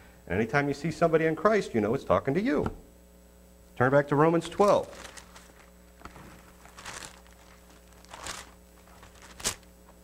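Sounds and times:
thin pages rustling: 0:04.6 - 0:10.0.

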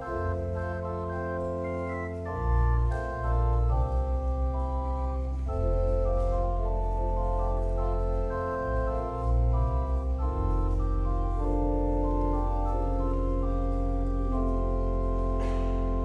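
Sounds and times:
church organ chords: 0:00.0 - 0:16.0.

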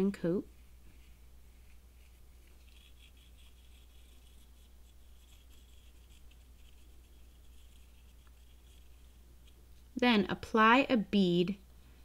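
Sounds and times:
low steady hum: 0:00.0 - 0:12.0
plastic nozzle scratching rubber: 0:01.6 - 0:09.6.

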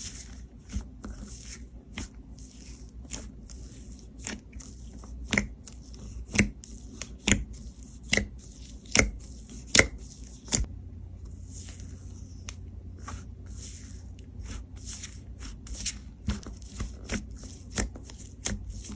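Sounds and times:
slime squishing: 0:00.0 - 0:10.7, 0:11.3 - 0:18.9.

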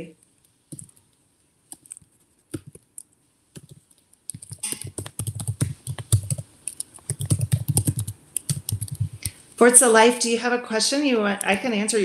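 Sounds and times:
typing on computer keyboard: 0:00.7 - 0:01.0, 0:01.7 - 0:09.4.

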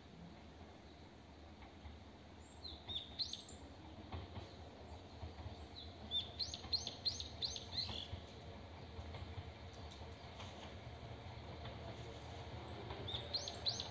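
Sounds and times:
small birds chirping: 0:04.4 - 0:08.2, 0:12.2 - 0:13.9.

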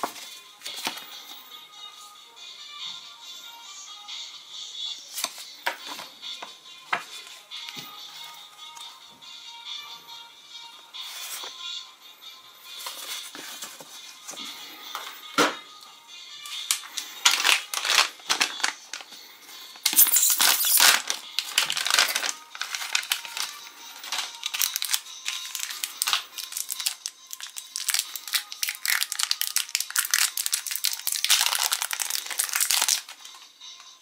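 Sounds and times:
faint background music: 0:00.0 - 0:34.0
foil wrapper crinkling: 0:16.7 - 0:19.1, 0:19.8 - 0:33.3.

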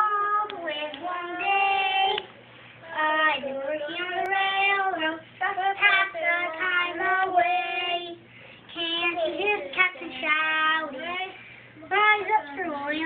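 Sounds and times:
child singing unaccompanied: 0:02.9 - 0:13.0.

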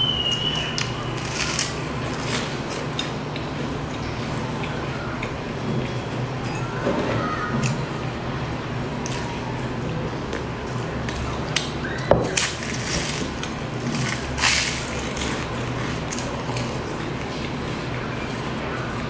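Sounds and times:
person chewing pastry: 0:00.2 - 0:06.7, 0:09.0 - 0:19.0
crisp crunch: 0:00.3 - 0:03.4, 0:11.1 - 0:19.0.

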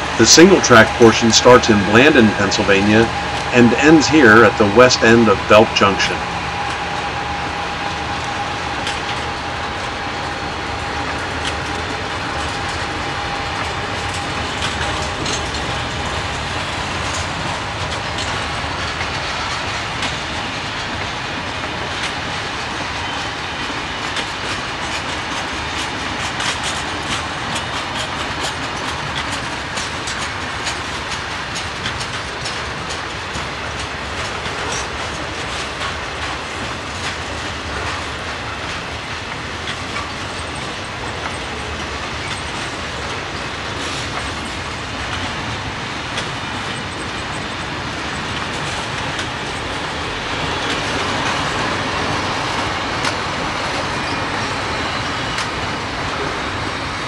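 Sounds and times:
freight train wheels clattering: 0:00.0 - 0:57.0
steady high tone: 0:00.2 - 0:14.0.

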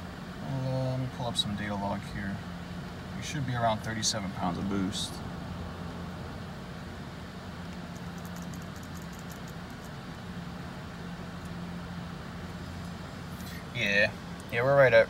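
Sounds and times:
machinery drone and hum: 0:00.0 - 0:15.0.

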